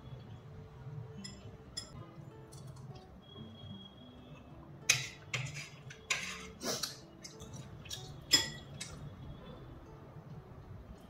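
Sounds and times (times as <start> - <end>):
soft background music: 0.0 - 11.0
cutlery clinking on glass and plate: 1.2 - 2.8, 4.8 - 9.0.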